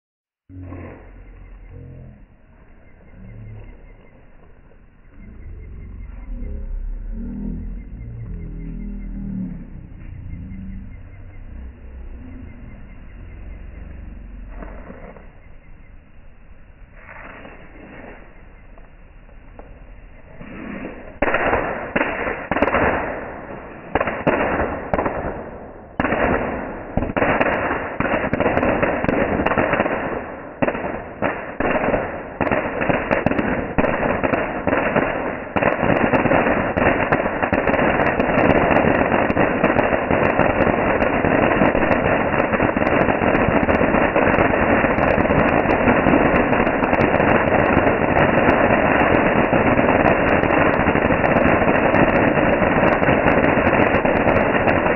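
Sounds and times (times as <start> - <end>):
firework spraying sparks: 26.0 - 54.9.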